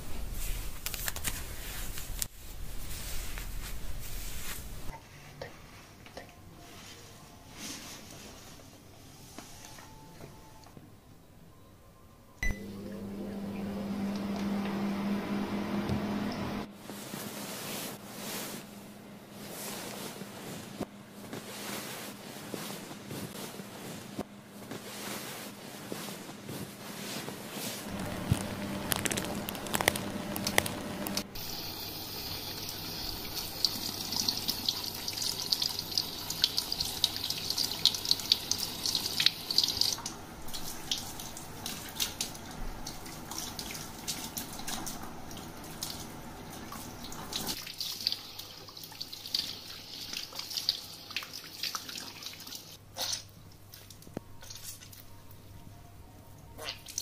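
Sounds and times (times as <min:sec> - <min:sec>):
shower sprayer hissing: 0:27.8 - 0:50.4
water dripping into basin: 0:32.3 - 0:46.1.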